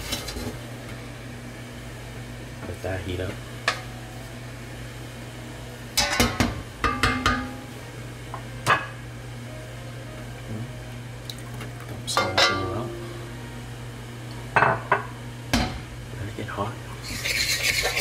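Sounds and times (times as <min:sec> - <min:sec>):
spatula knocking and scraping wok: 0:06.0 - 0:07.6.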